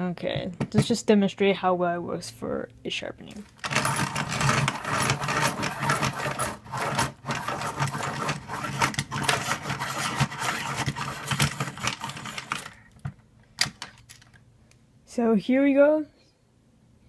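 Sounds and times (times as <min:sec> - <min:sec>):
pencil sharpener grinding: 0:03.6 - 0:12.8.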